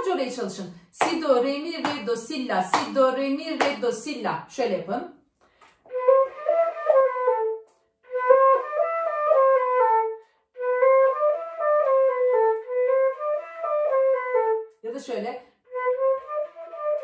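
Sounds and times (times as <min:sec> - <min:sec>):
flute playing a scale run: 0:05.8 - 0:14.8, 0:15.7 - 0:17.0.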